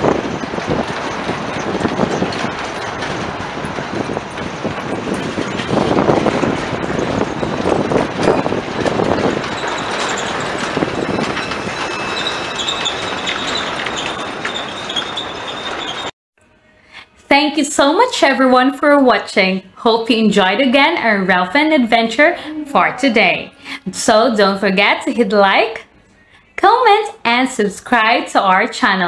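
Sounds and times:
freight train rumbling past: 0.0 - 16.1
faint high wheel squeal: 9.2 - 16.1.

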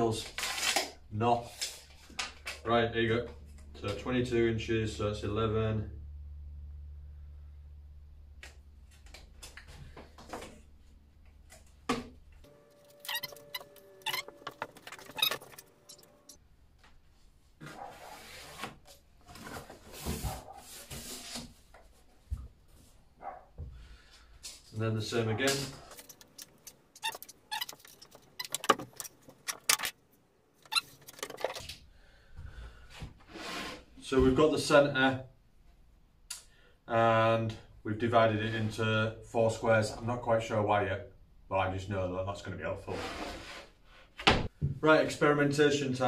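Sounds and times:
low hum: 3.3 - 8.9.

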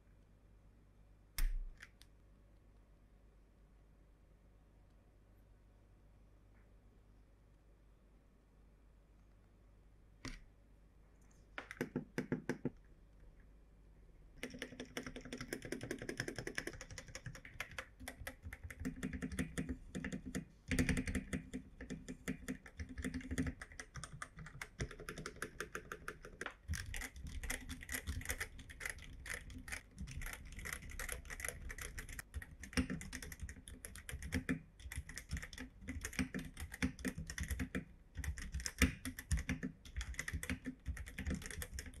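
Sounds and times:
mechanical keyboard typing: 14.4 - 42.0.

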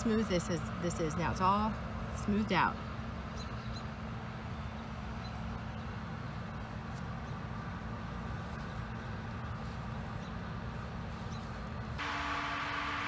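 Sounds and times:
faint constant hum: 0.0 - 13.0
steady low rumble: 11.8 - 13.0.

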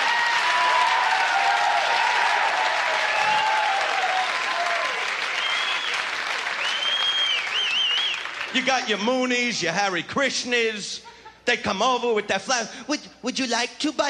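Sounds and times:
audience applauding and cheering: 0.0 - 9.1.

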